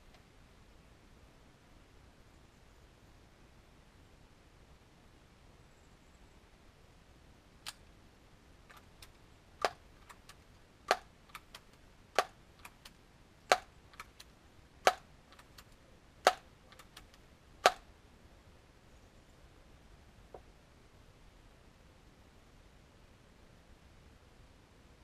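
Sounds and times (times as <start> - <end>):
light clicks: 8.7 - 17.8.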